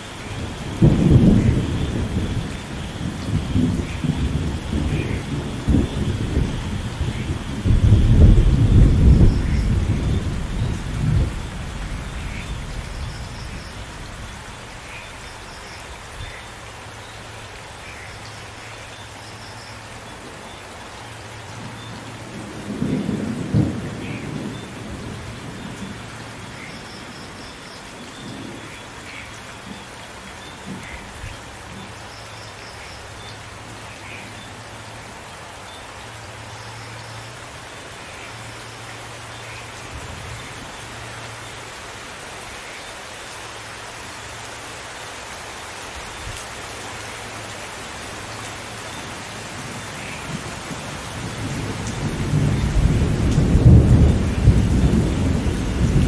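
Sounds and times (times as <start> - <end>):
steady rain: 0.0 - 56.0
thunder rumbling: 0.2 - 14.9, 49.5 - 56.0.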